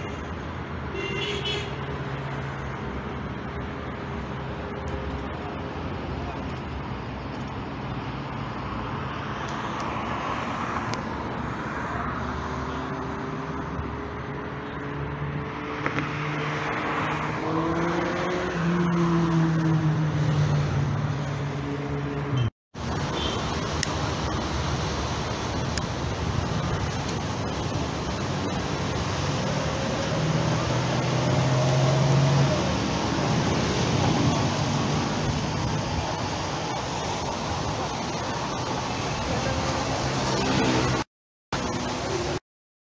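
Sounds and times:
traffic rushing past: 0:00.0 - 0:42.4
wind: 0:00.0 - 0:42.4
passing vehicle engine hum: 0:26.4 - 0:41.0
engine hum rising in pitch: 0:29.4 - 0:35.2.

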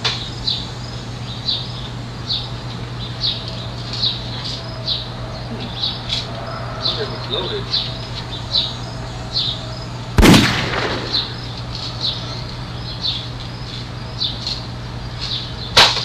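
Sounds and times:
bb gun shots: 0:10.2 - 0:11.5.

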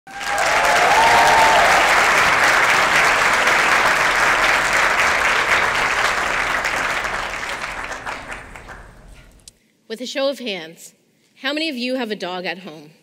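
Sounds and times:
audience applauding: 0:00.1 - 0:09.5.

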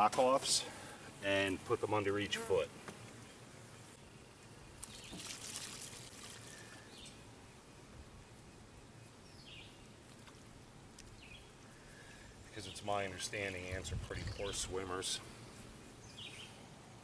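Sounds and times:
water splashing into tub: 0:04.8 - 0:06.5
faint bird chirps: 0:06.4 - 0:10.4.

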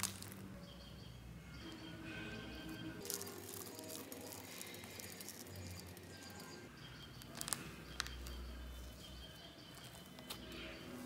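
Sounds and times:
slime crackling: 0:00.0 - 0:00.5, 0:03.0 - 0:06.6.

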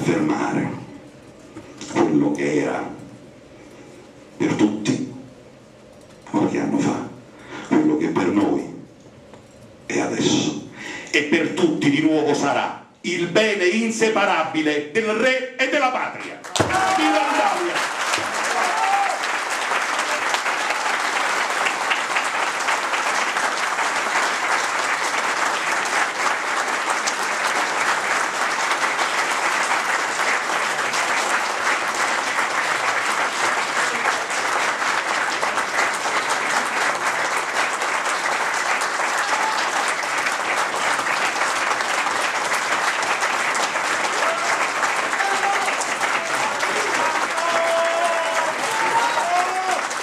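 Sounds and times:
audience applauding: 0:16.2 - 0:50.0.

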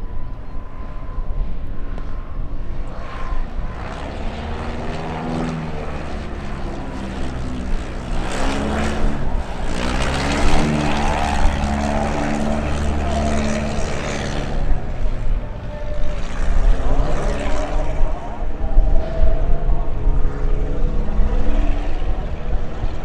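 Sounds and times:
light plane flying past: 0:00.0 - 0:23.0.

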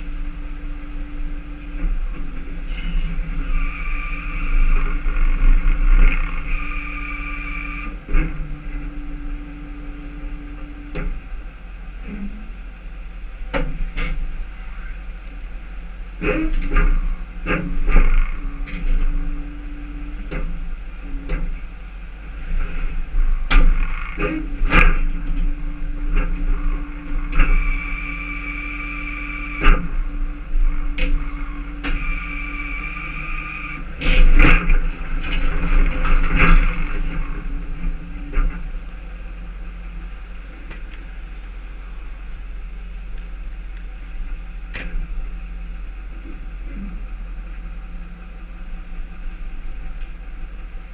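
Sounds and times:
high whines: 0:00.0 - 0:11.5, 0:22.3 - 0:40.0
tow truck running: 0:00.0 - 0:50.9.

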